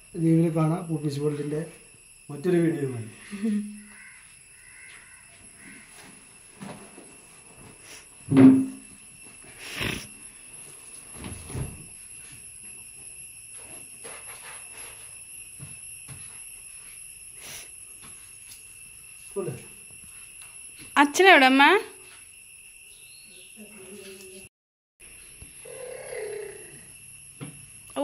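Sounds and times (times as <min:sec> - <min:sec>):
suitcase knocks and thumps: 0:08.3 - 0:08.8.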